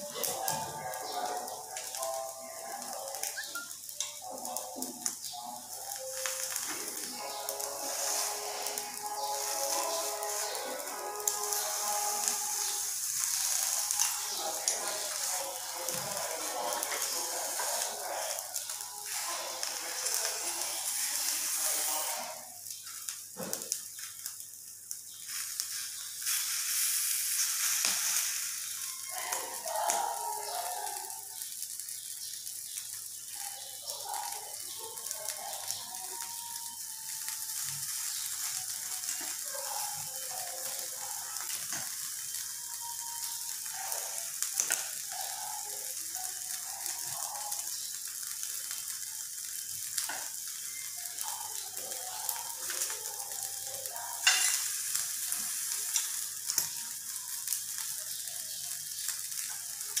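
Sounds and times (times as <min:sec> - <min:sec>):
chicken sizzling on a grill: 0:00.0 - 1:00.0.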